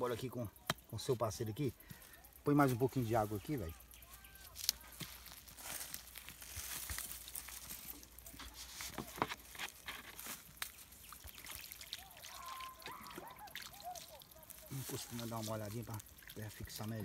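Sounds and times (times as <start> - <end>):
water pouring onto soil: 1.3 - 17.0
gurgling pulses of water: 10.5 - 17.0.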